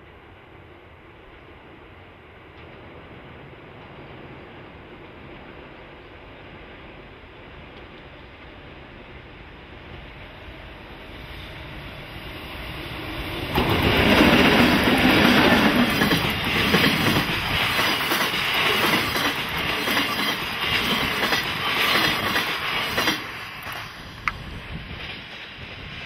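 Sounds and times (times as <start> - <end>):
electric locomotive passing: 0.0 - 26.0
train wheels clattering over rails: 13.4 - 26.0.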